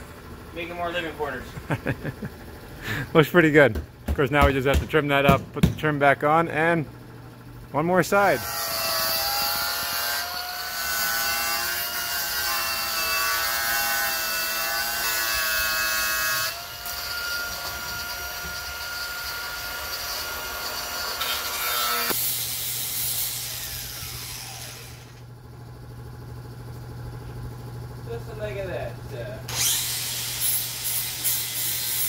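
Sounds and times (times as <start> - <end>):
power saw cutting plywood: 8.2 - 25.2, 29.5 - 32.0.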